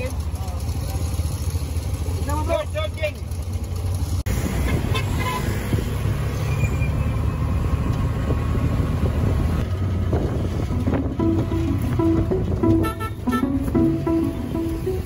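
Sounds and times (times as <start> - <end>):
three-wheeler engine running: 0.0 - 4.6, 7.2 - 15.0
road noise: 0.0 - 15.0
guitar music: 10.7 - 15.0.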